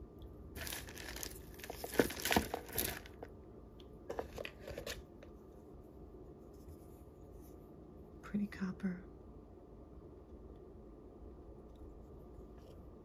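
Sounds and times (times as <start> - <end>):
plastic bag crinkling: 0.6 - 3.3.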